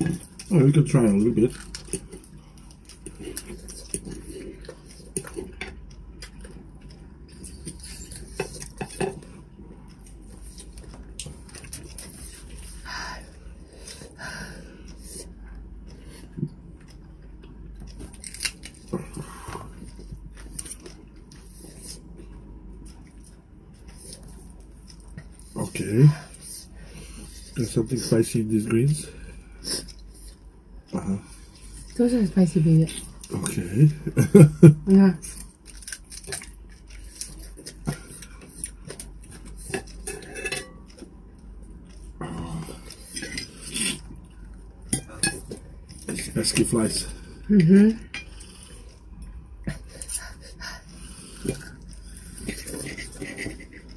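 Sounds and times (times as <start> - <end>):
chewing and mouth sounds: 0.0 - 14.2, 14.8 - 26.5
low steady hum: 0.0 - 53.9
knife and fork scraping a plate: 39.5 - 40.9.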